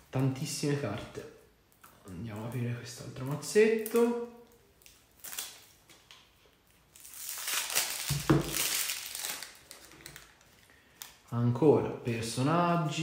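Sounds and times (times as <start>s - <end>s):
plastic wrap crinkling and tearing: 3.7s - 11.2s.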